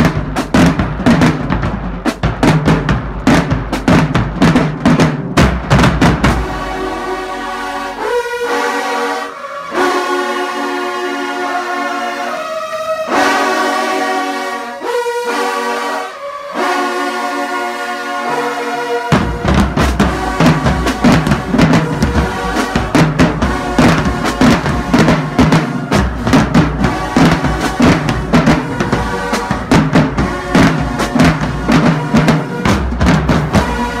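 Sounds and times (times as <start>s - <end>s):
bass drums: 0.0s - 6.8s, 19.1s - 34.0s
snare drums: 0.0s - 10.4s, 18.2s - 34.0s
held brass chord: 6.2s - 34.0s.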